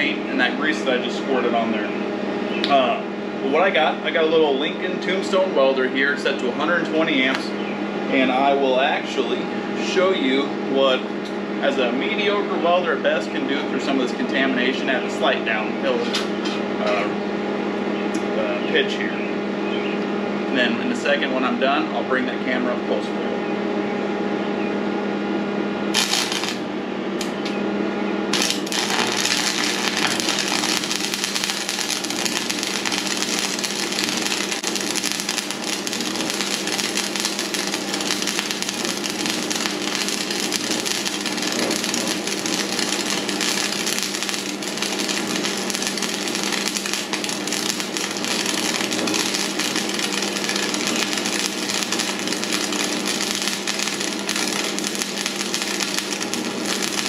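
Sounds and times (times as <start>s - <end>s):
welding arc crackling and hissing: 0.0s - 1.6s, 25.9s - 27.3s, 28.3s - 57.0s.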